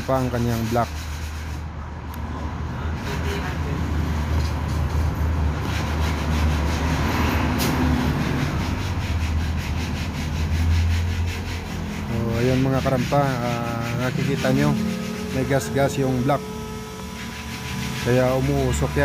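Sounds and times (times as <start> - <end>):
low mechanical hum: 8.1 - 19.0.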